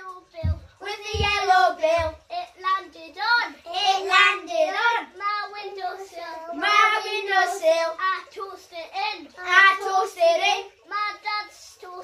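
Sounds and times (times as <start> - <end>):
children singing together: 0.0 - 12.0
low thumps: 0.4 - 2.2.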